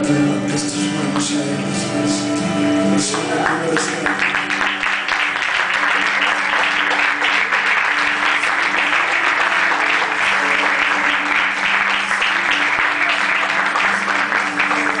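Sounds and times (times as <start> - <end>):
audience applauding: 3.1 - 15.0.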